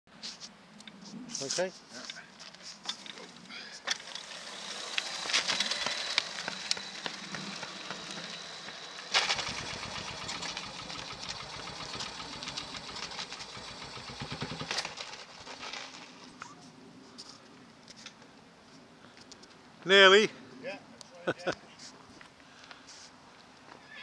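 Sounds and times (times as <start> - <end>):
motorcycle engine firing and running unevenly: 4.0 - 16.3.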